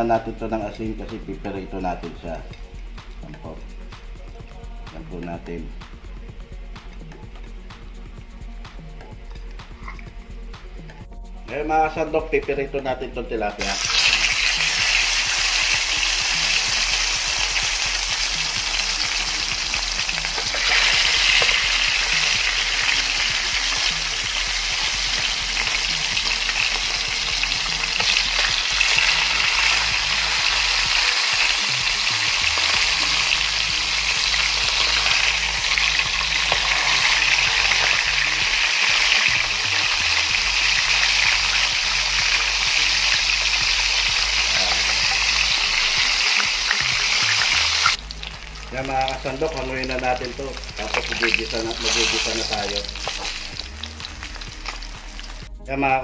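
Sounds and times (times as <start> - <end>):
fish frying in hot oil: 13.6 - 55.5.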